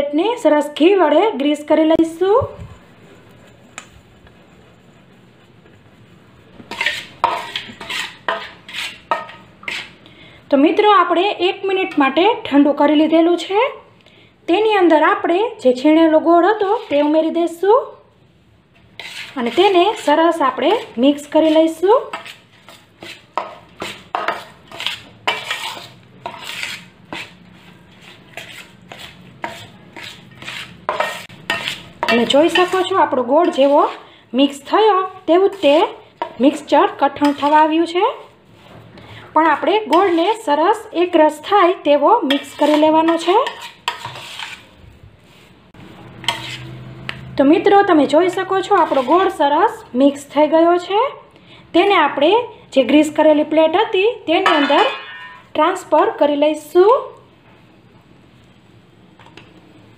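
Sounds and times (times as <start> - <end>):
spatula scraping steel bowl: 6.6 - 10.0, 16.4 - 17.4, 18.8 - 38.3, 39.5 - 41.0, 42.2 - 44.8, 46.1 - 49.8, 54.3 - 55.6.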